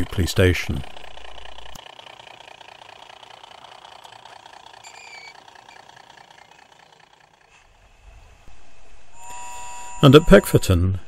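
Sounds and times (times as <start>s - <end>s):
model train rattling on track: 0.0s - 8.1s.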